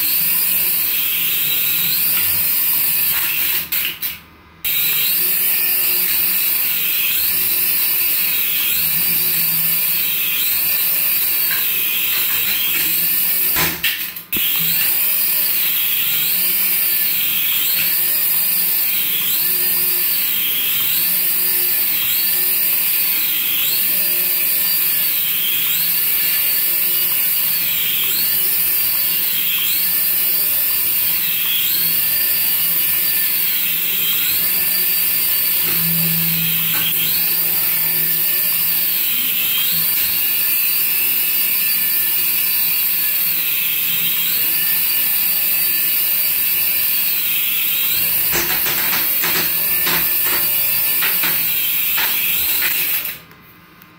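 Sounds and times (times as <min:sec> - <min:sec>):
toy helicopter rotor motors whining: 0:00.0 - 0:53.3.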